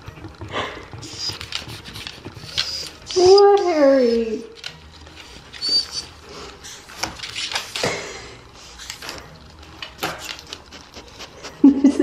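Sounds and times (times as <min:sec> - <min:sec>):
dog claws scratching at door: 0:00.0 - 0:03.4
dog paws tapping on hard floor: 0:00.0 - 0:08.2, 0:08.8 - 0:10.7.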